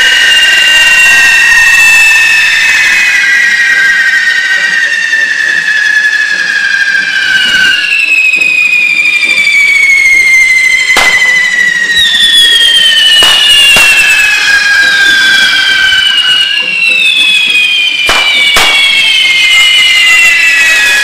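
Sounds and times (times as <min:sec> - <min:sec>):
fireworks hissing and whistling: 0:00.0 - 0:21.0
firecracker bangs: 0:10.8 - 0:17.0, 0:17.6 - 0:21.0.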